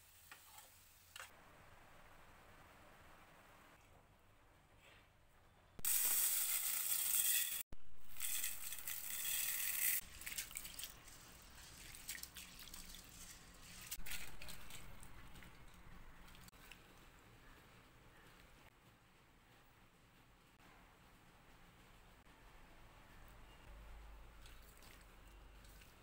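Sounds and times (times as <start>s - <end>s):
splashing of rice washing: 10.1s - 13.9s.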